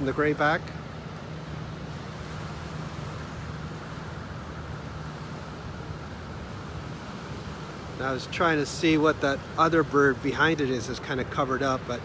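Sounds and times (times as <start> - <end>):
constant low hum: 0.0 - 12.0
outdoor background rumble: 0.0 - 12.0.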